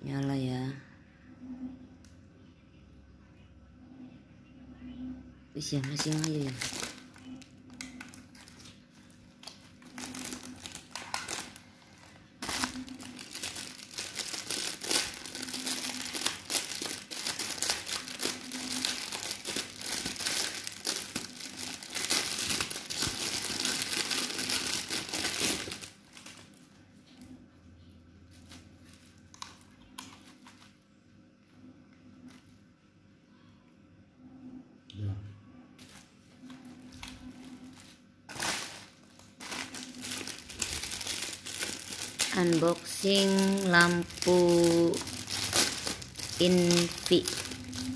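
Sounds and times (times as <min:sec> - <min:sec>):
bubble wrap crinkling: 0:05.6 - 0:27.3, 0:28.3 - 0:30.8, 0:35.8 - 0:47.9.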